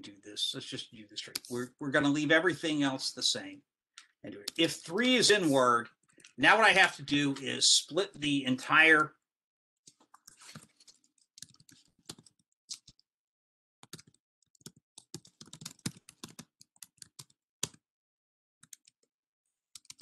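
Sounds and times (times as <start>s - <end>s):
computer keyboard typing: 10.1s - 13.0s, 13.8s - 17.8s, 19.8s - 20.0s.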